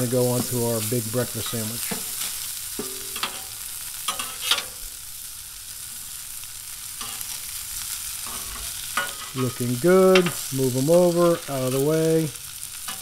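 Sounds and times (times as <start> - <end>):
sausage patties sizzling on griddle: 0.0 - 13.0
metal spatula scraping griddle: 1.4 - 4.9, 6.9 - 13.0.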